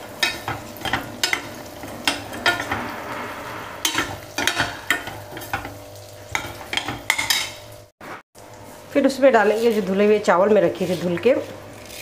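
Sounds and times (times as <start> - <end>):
metal ladle scraping pan: 0.0 - 7.7
food sizzling in oil: 0.0 - 12.0.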